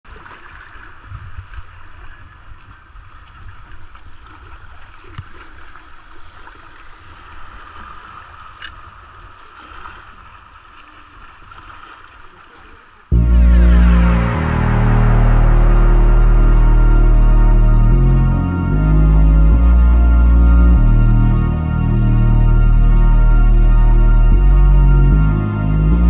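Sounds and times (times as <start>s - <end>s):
low microphone rumble: 13.1s - 26.0s.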